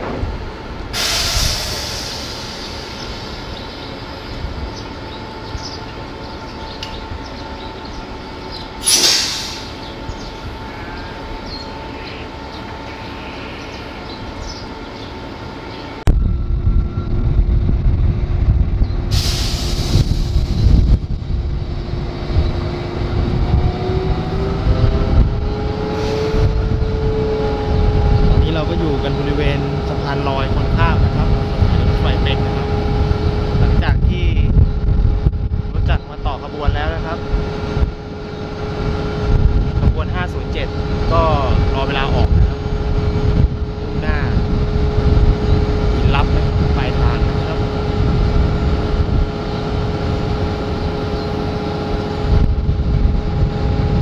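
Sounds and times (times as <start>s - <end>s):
deep engine rumble: 0.0s - 54.0s
diesel locomotive running: 0.0s - 54.0s
air hissing bursts: 0.9s - 3.1s, 8.8s - 9.8s, 19.1s - 20.7s.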